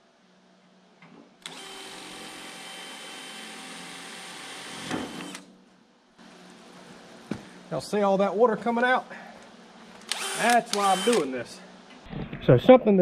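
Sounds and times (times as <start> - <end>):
cordless drill whining: 1.4 - 5.5, 10.0 - 11.4.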